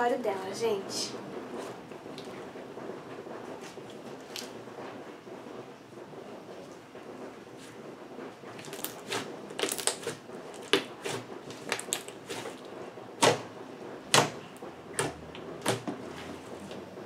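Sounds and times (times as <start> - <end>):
slime squishing: 8.5 - 13.5, 14.1 - 16.8.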